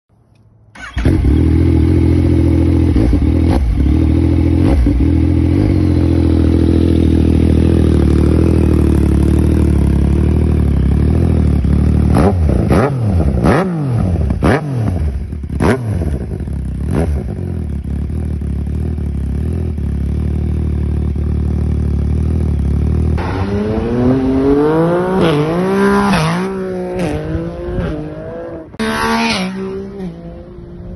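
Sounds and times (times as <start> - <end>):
motorcycle engine idling: 0.8 - 12.2, 15.2 - 23.2.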